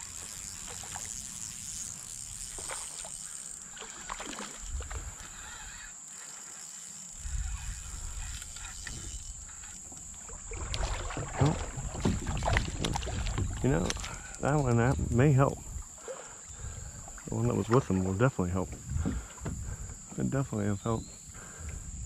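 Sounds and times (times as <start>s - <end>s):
landing net entering water: 0.0s - 5.8s, 9.3s - 16.1s
water sloshing: 0.0s - 20.1s
small knocks on kayak: 10.7s - 14.1s, 18.6s - 20.1s.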